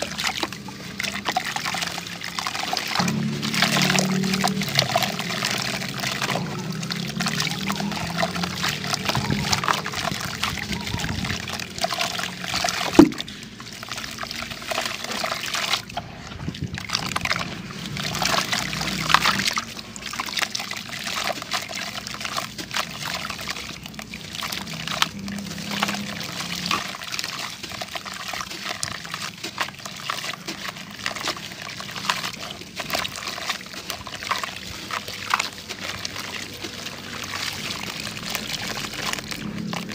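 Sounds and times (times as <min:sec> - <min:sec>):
water dribbling into a bucket: 0:00.0 - 0:39.9
wet dirt squeezed by hand: 0:00.0 - 0:39.9.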